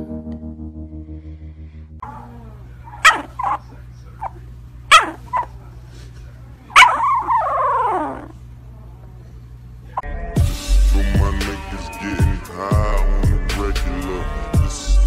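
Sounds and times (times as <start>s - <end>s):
puppy yipping: 2.0s - 4.3s, 4.9s - 5.6s, 6.7s - 8.4s.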